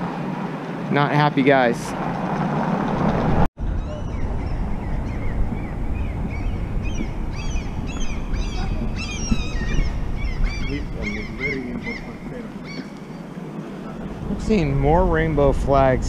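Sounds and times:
low street rumble: 0.0s - 16.0s
birds chirping: 3.6s - 15.5s.

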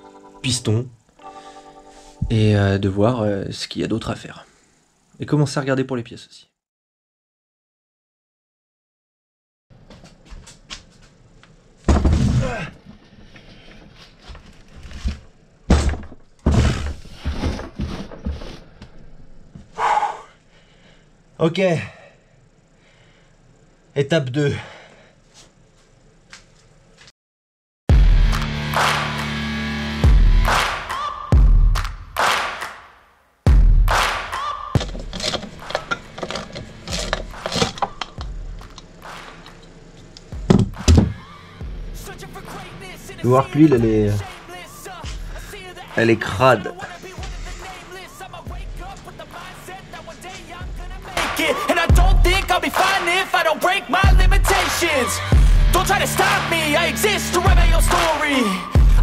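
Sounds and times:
heavy engine block thunk on wood: 11.9s - 12.5s, 15.7s - 18.0s, 40.4s - 41.2s
knocks on wooden workbench: 40.4s - 41.2s.

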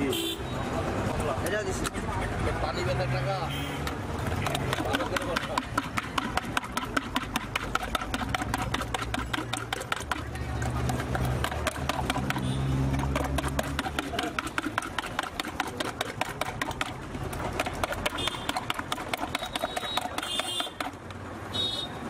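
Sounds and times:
juice stirred in plastic jug: 3.9s - 21.1s.

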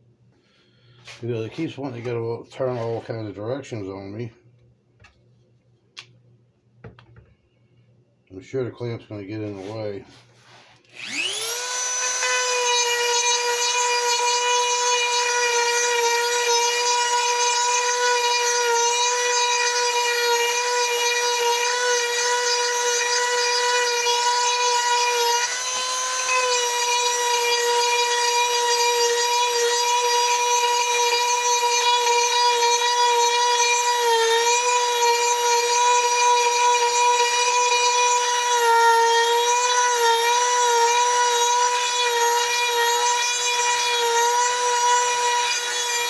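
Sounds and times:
power tool whining cutting wood: 9.4s - 46.0s.

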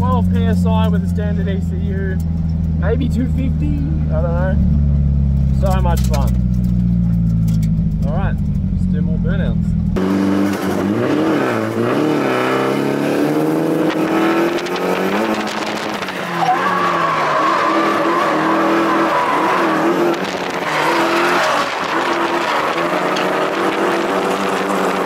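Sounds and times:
car engine revving: 0.0s - 25.0s
tyres squealing: 14.9s - 25.0s.

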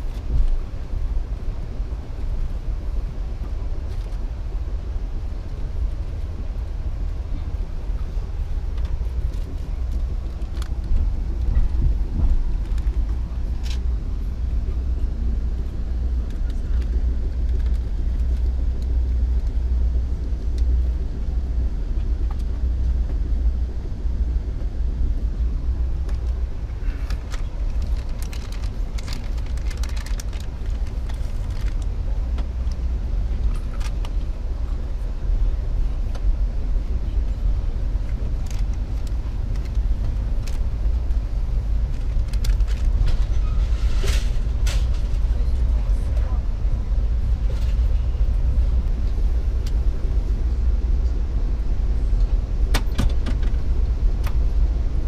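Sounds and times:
train rumble inside coach: 0.0s - 55.0s
light clicks and rattles: 26.0s - 34.3s, 41.8s - 46.4s.

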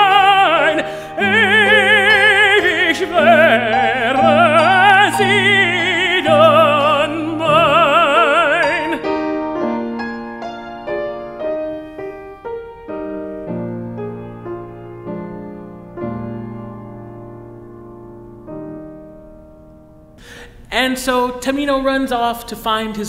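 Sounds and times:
operatic tenor singing: 0.0s - 9.3s
grand piano: 0.0s - 23.0s.

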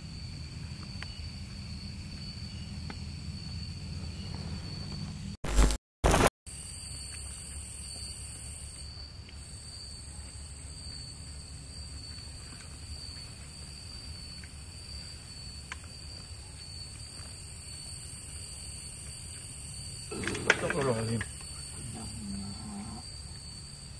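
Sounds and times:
night insects chirping: 0.0s - 23.9s
electronic glitch burst: 5.4s - 6.3s.

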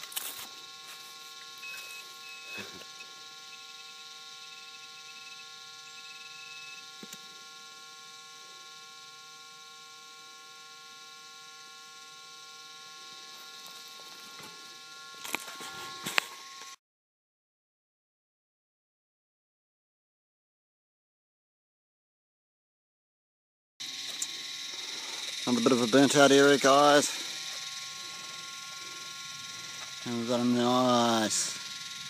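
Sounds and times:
metal detector electronic hum: 0.0s - 16.8s, 23.8s - 32.0s.

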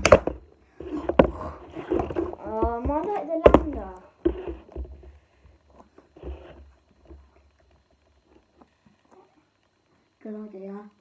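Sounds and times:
plastic bottles tapping on wood: 0.0s - 5.2s
plastic bottles shuffling: 0.0s - 7.3s.

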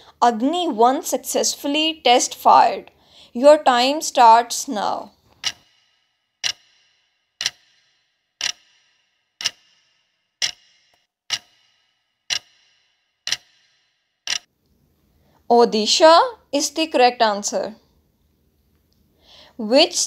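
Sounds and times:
clock ticking with ring: 4.9s - 14.5s.

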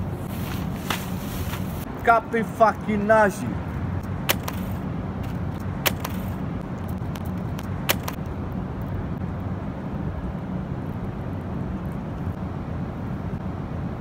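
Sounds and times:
city traffic rumble: 0.0s - 14.0s
sharp clicks: 4.3s - 8.3s.

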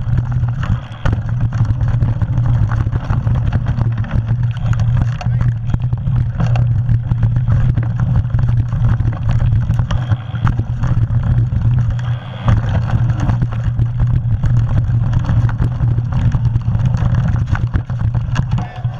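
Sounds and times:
bike rattling and knocking: 0.0s - 18.9s.

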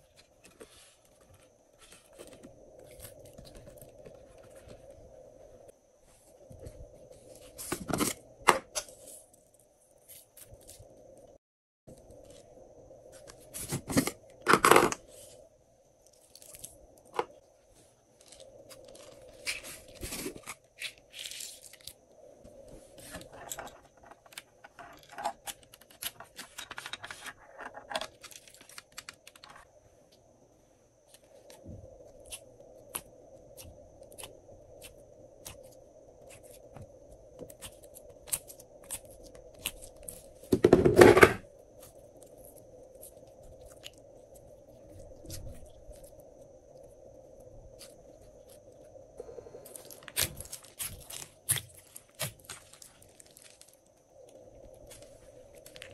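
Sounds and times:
plastic containers knocking: 40.5s - 41.4s.

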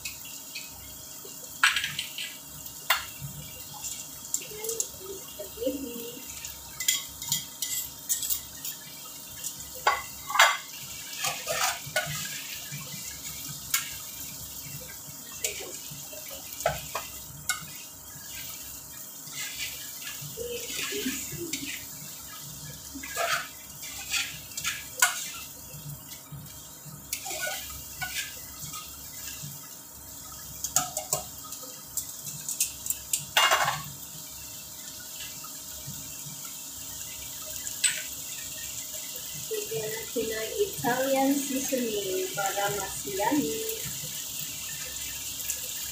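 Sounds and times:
metal tongs clinking on pan: 6.8s - 8.8s, 30.6s - 31.3s, 32.0s - 33.9s, 37.8s - 38.1s.

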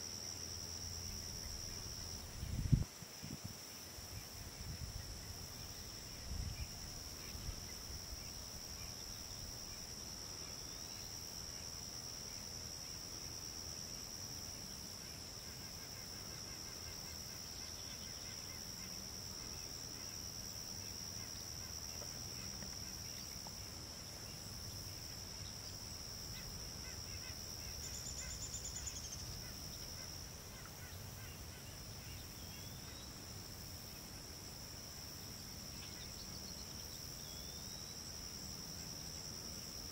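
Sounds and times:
insects chirping chorus: 0.0s - 39.9s.

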